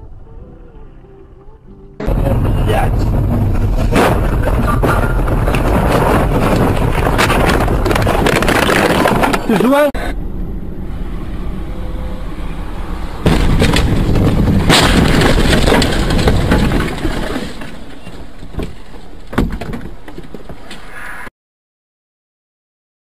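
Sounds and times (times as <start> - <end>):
road and engine noise: 0.0 - 21.3
car crash with crunching: 2.0 - 9.9, 13.2 - 20.4.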